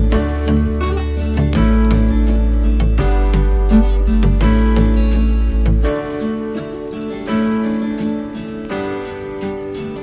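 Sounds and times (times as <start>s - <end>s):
instrumental music with deep bass: 0.0s - 8.0s.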